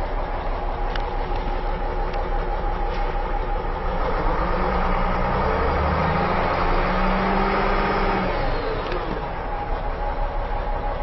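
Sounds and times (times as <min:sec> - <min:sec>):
diesel engine revving: 0:00.0 - 0:11.0.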